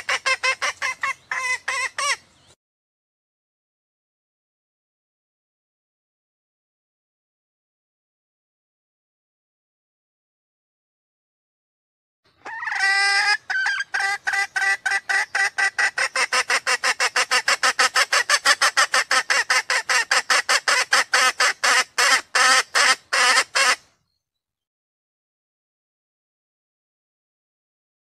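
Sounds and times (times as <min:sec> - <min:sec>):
hen clucking: 0:00.0 - 0:02.2, 0:12.4 - 0:23.8.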